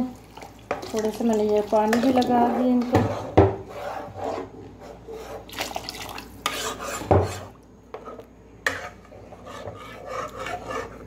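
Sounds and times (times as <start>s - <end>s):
spoon stirring thick curry in pot: 6.5s - 11.0s.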